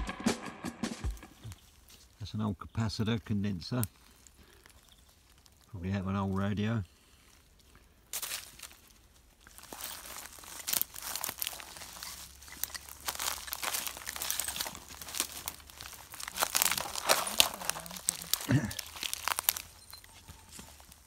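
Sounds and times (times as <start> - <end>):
plastic litter and leaves crackling: 1.3 - 21.0.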